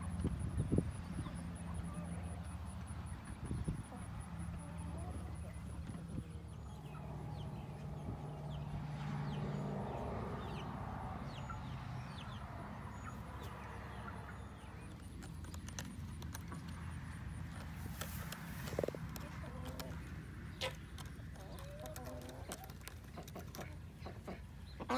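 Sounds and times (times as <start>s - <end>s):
chickens clucking: 0.1s - 24.9s
sharp ticks: 14.9s - 20.1s.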